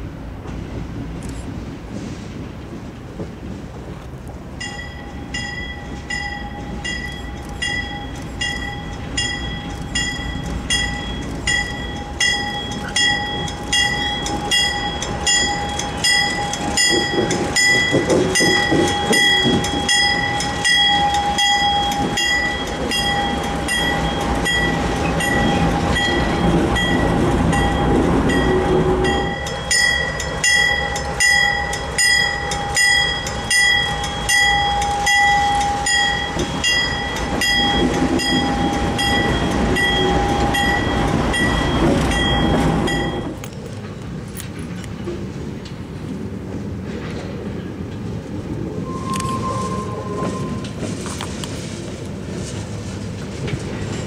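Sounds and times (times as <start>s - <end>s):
freight train rumbling past: 0.0s - 54.0s
crossing bell ringing: 4.6s - 43.5s, 48.8s - 51.7s.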